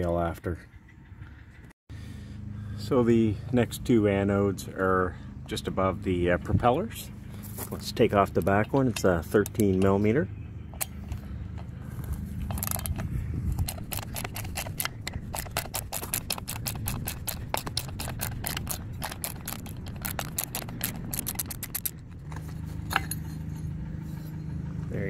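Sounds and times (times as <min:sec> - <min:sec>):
ratchet wrench clicking: 0:12.5 - 0:22.1.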